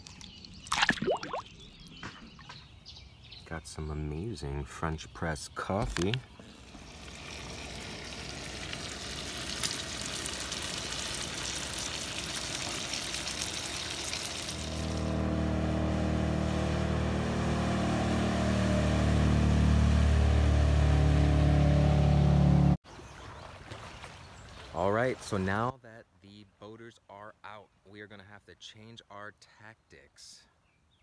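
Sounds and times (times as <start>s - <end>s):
crackling sizzle: 6.4s - 15.2s
speedboat engine passing: 14.4s - 22.8s.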